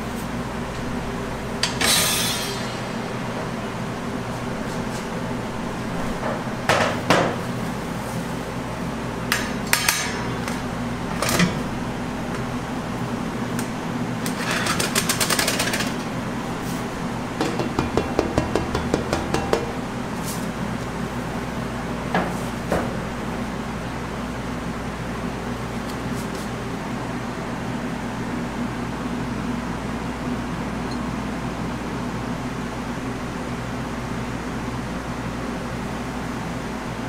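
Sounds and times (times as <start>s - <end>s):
metal knocks and clanks: 17.4s - 19.8s.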